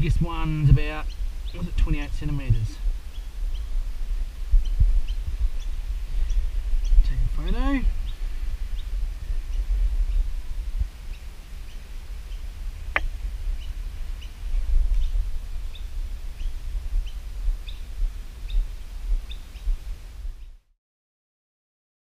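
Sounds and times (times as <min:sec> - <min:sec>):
wind buffeting microphone: 0:00.0 - 0:20.6
small bird chirping: 0:00.8 - 0:03.8, 0:04.5 - 0:10.4, 0:11.0 - 0:19.8.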